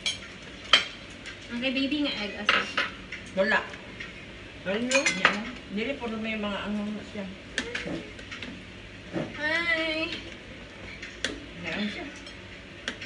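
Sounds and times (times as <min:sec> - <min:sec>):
cutlery clinking on plates: 0:04.9 - 0:05.6
people talking: 0:11.6 - 0:12.2.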